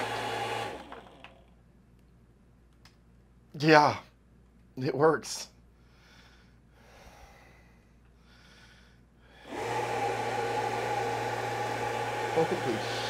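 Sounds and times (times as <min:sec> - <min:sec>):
blower fan motor hum: 0:00.0 - 0:01.5, 0:09.4 - 0:13.0
faint breathy sounds: 0:05.7 - 0:09.5.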